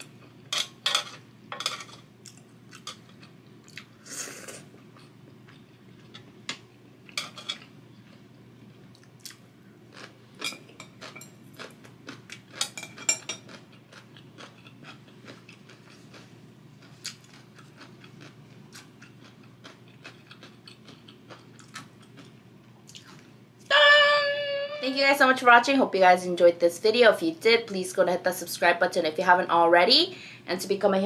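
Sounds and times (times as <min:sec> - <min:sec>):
person chewing food: 0:02.2 - 0:04.0, 0:07.6 - 0:23.4.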